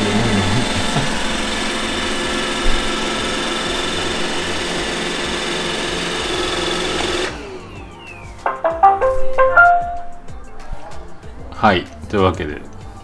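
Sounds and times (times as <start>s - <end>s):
robot vacuum whirring: 0.0s - 8.3s.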